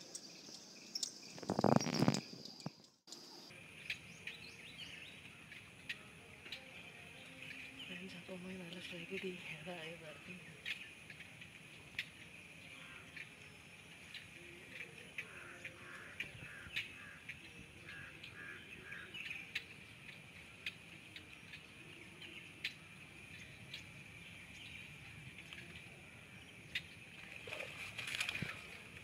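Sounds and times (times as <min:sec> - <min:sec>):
birds calling: 0:00.0 - 0:29.0.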